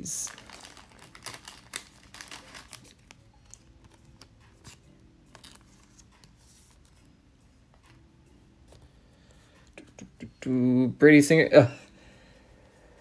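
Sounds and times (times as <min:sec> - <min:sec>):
cards being flipped through: 0:00.1 - 0:07.1.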